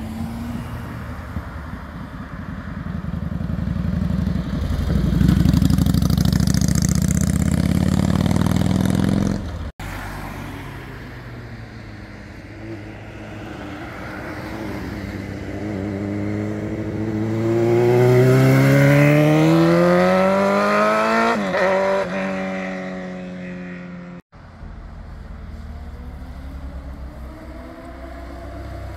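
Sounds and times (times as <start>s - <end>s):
motorcycle engine passing close: 0.0s - 9.7s, 12.5s - 24.2s
sport bike accelerating: 2.4s - 9.7s, 14.4s - 24.2s.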